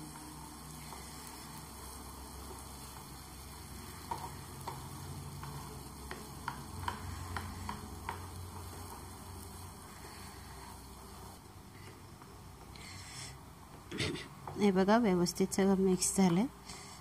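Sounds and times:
faint steady hum: 0.0 - 17.0
spatula stirring in a pan: 0.0 - 17.0
spatula clicking against pan: 4.0 - 9.1.

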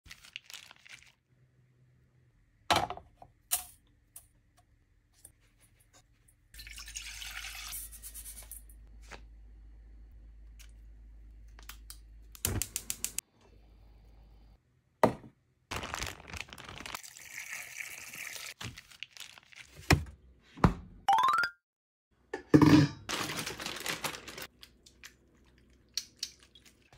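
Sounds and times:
liquid sloshing and dripping: 24.4 - 26.9.

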